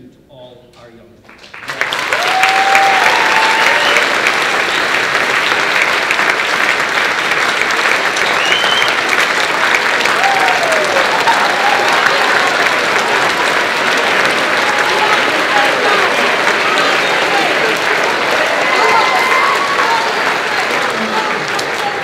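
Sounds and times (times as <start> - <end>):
crowd applauding: 1.3 - 22.0
voices whooping: 2.1 - 4.3, 10.1 - 12.8, 14.6 - 21.8.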